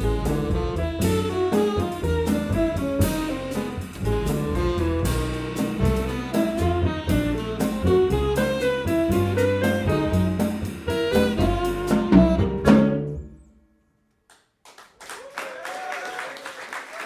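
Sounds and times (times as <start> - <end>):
drum kit cymbal and drum strokes: 0.0 - 13.2
walking double bass: 0.0 - 13.3
piano: 0.0 - 13.8
tenor saxophone melody: 6.8 - 13.2.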